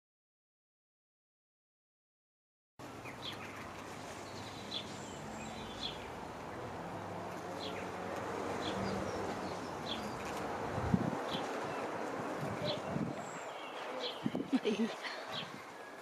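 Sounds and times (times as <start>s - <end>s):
bird chirps: 12.6s - 16.0s.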